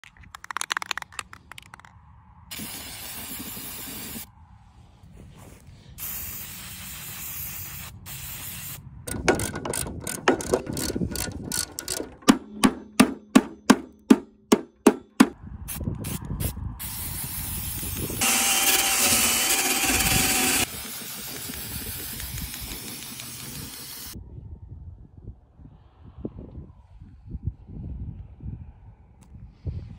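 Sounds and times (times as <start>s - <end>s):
spray-paint can hissing: 2.5s - 4.3s, 6.0s - 8.8s, 16.0s - 18.2s, 18.9s - 24.2s
rapid clicking and rattling: 9.1s - 14.2s, 18.2s - 24.2s.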